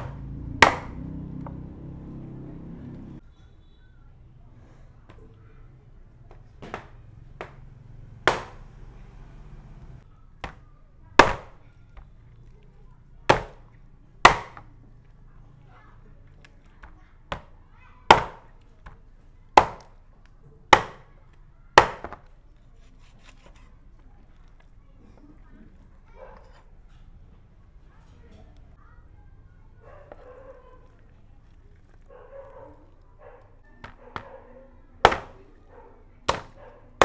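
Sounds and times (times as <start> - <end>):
knife chopping hard: 0.0 - 2.7, 6.6 - 8.8, 11.2 - 11.6, 13.3 - 13.6, 14.2 - 14.6, 18.1 - 18.5, 19.6 - 19.9, 20.7 - 21.1, 21.8 - 22.3, 35.0 - 35.4, 36.3 - 37.0.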